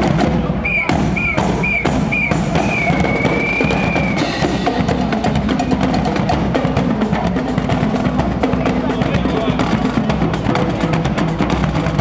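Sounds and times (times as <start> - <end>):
bass drum and snare cadence: 0.0 - 12.0
whistle blasts: 0.6 - 4.4.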